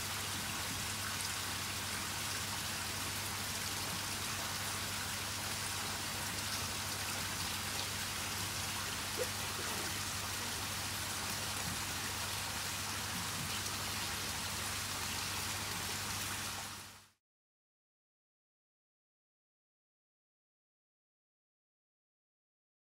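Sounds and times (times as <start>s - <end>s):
water fizzing and pattering: 6.1s - 13.9s.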